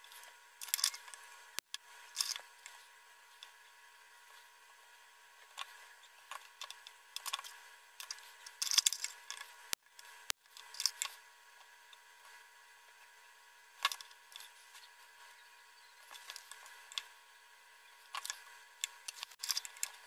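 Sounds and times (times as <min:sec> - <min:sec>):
metal tweezers clicking and scraping: 0:00.6 - 0:01.2, 0:02.1 - 0:02.8, 0:06.3 - 0:09.5, 0:18.2 - 0:20.0.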